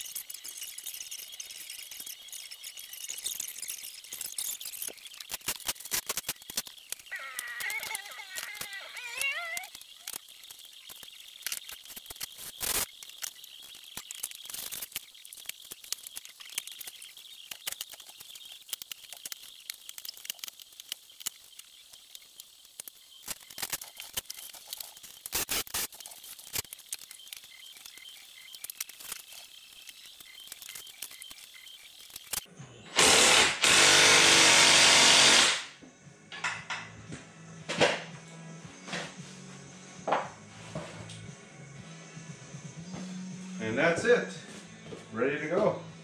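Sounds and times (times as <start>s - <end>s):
hand tools and metal parts clicking: 0.0s - 34.4s.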